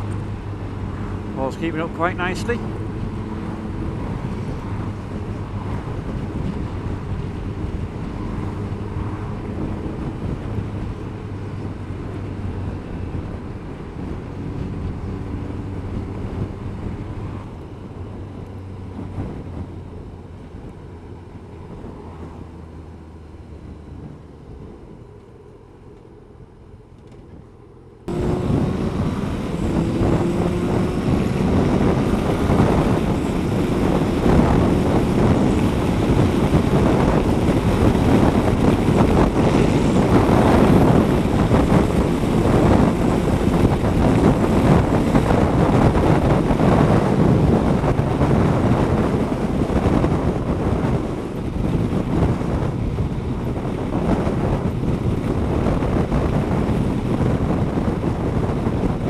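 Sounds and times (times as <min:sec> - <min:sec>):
wind rushing over microphone: 0:00.0 - 0:59.0
motorcycle engine running: 0:28.1 - 0:59.0.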